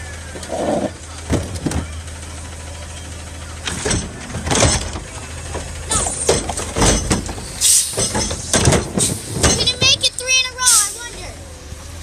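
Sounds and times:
truck engine running: 0.0 - 12.0
trash cart clattering and banging: 0.3 - 2.2, 3.6 - 11.0.

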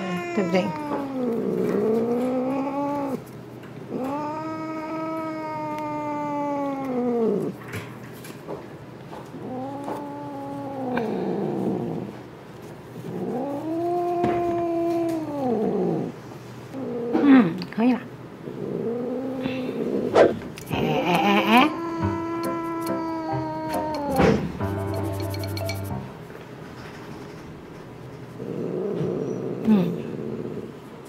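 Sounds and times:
cat yowling: 0.0 - 3.2, 20.2 - 24.6.

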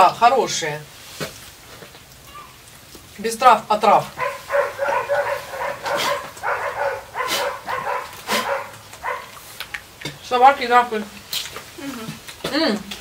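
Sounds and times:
dog barking: 4.2 - 9.4.

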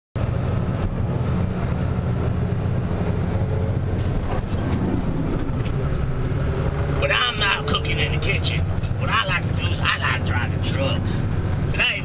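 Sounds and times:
truck engine rumbling: 0.2 - 12.0.

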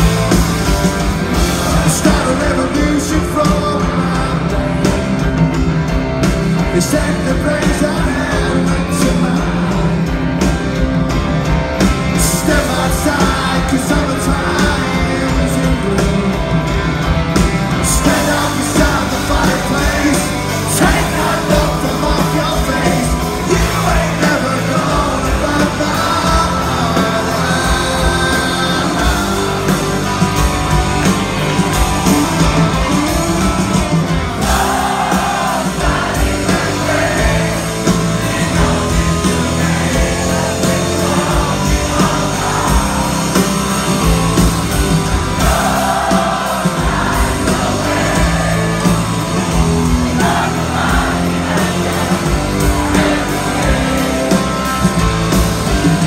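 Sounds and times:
drums: 0.0 - 56.0
electric guitar: 0.0 - 56.0
person singing: 17.8 - 29.7.

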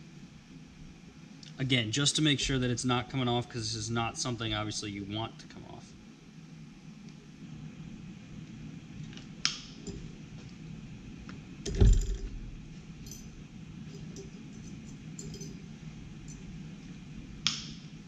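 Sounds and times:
heavy metallic clunk: 11.7 - 12.4
metal tool clinking: 13.0 - 15.7.

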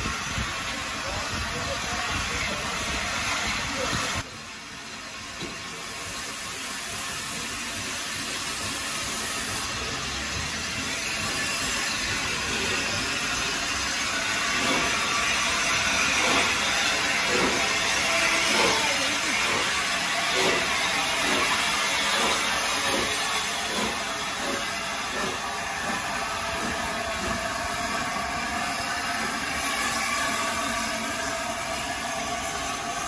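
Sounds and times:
steam locomotive hissing: 0.0 - 33.0
regular locomotive beat: 6.9 - 33.0.

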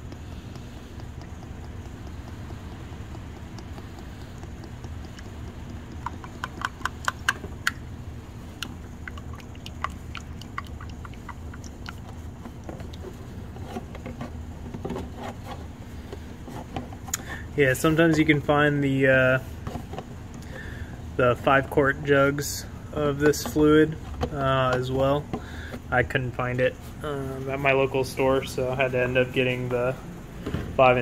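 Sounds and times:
sharp ticks: 0.0 - 7.8, 8.6 - 12.0
steady low hum: 0.0 - 31.0.

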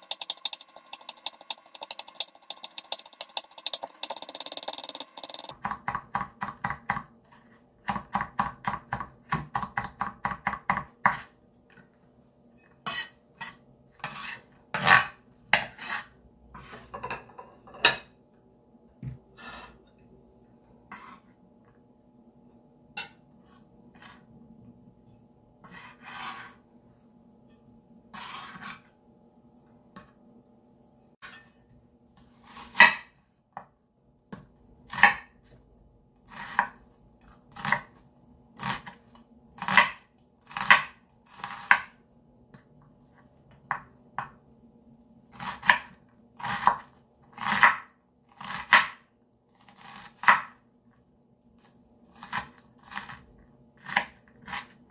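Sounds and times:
knife scraping across board: 0.0 - 5.5, 12.9 - 14.5, 15.7 - 16.9, 20.9 - 21.3, 25.6 - 26.6, 28.1 - 28.9
knife cutting onion: 0.0 - 11.3, 34.9 - 35.5, 36.3 - 38.0, 38.6 - 41.9, 45.3 - 50.6, 52.1 - 54.8.

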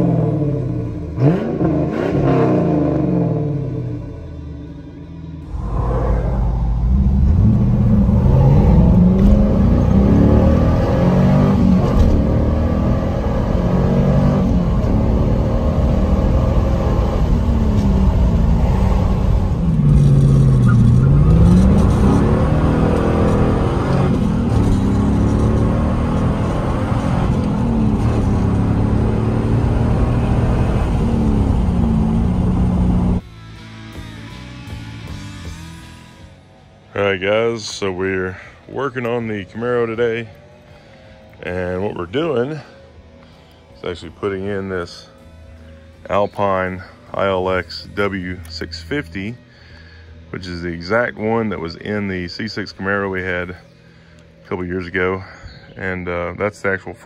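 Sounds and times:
v eight engine accelerating: 0.0 - 33.2.

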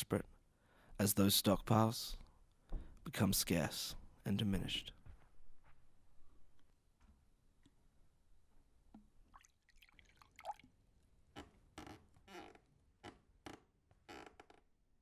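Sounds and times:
water dripping: 8.9 - 10.8
water pouring into glass: 9.3 - 10.7.

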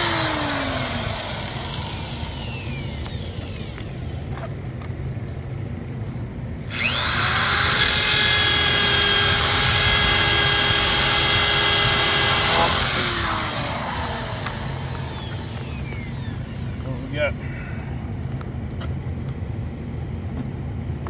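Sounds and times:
electric power tool whining: 0.0 - 4.5, 6.7 - 17.2.

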